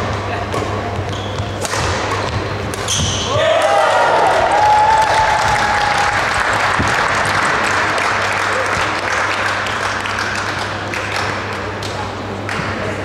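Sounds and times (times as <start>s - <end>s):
spectators applauding and cheering: 3.3s - 11.8s.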